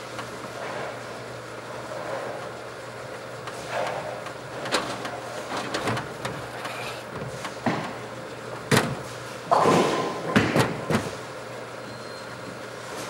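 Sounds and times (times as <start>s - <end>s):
ball return mechanical hum: 0.0s - 13.0s.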